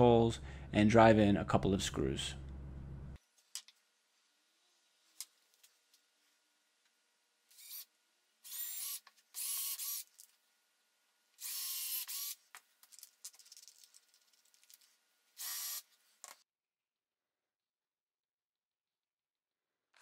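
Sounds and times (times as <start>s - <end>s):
cordless drill boring into wood: 7.6s - 7.8s, 8.4s - 10.1s, 11.4s - 12.4s, 15.4s - 15.8s.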